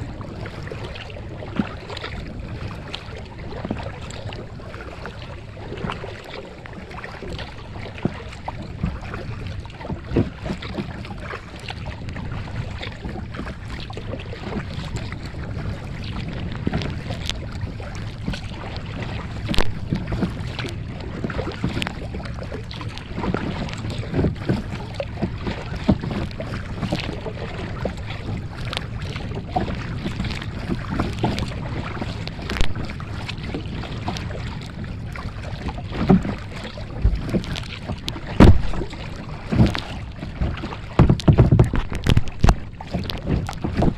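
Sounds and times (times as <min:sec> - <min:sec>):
paddle strokes splashing: 0:00.0 - 0:43.9
water lapping against hull: 0:00.0 - 0:43.9
wind buffeting microphone: 0:11.8 - 0:43.9.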